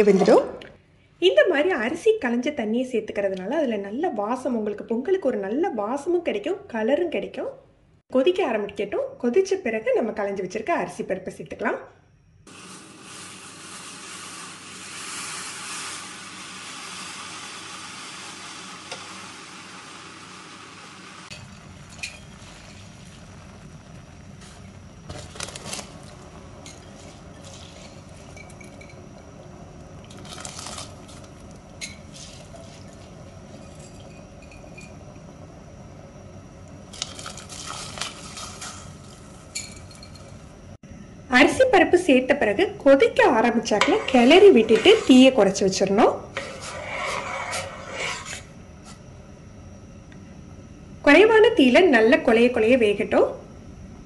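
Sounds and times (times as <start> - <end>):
pot hissing and bubbling: 12.5 - 35.6, 36.8 - 40.5, 43.6 - 49.0.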